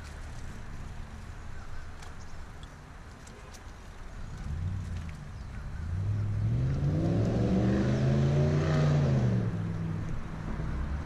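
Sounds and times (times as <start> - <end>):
vehicle engine passing: 4.3 - 11.0.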